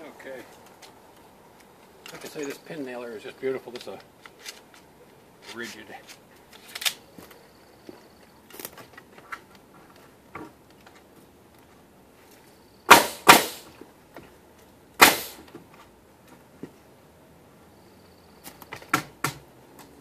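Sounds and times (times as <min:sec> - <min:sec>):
pin nailer firing: 0:12.9 - 0:13.7, 0:15.0 - 0:15.4.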